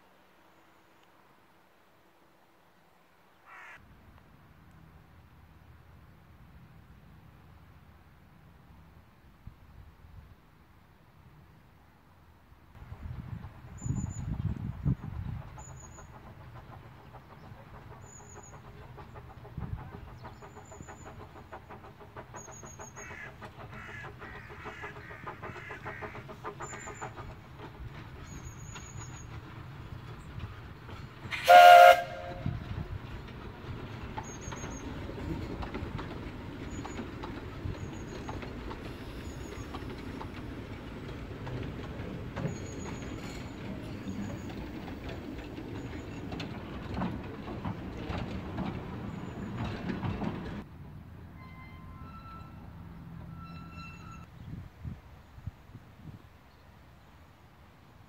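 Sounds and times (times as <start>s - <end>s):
steam locomotive running: 12.8s - 56.2s
steam whistle blast: 31.3s - 32.5s.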